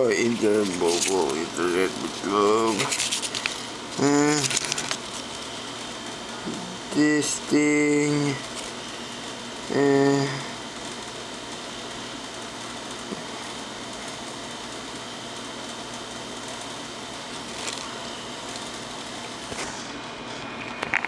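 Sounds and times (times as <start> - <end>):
steady background hiss: 0.0 - 20.6
paper rustling and tapping: 4.4 - 5.0.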